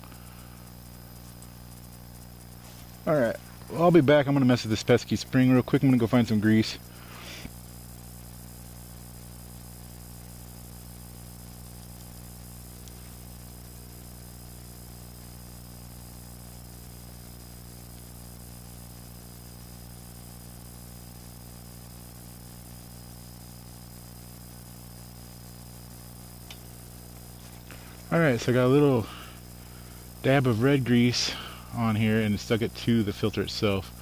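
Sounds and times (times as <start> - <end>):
steady low hum: 0.0 - 34.0
faint tick: 12.8 - 13.0.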